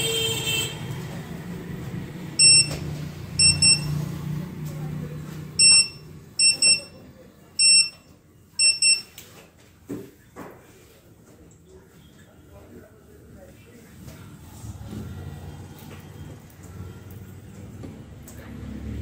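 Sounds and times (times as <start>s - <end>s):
short high electronic beeps: 2.4s - 2.8s, 3.4s - 4.0s, 5.6s - 7.0s.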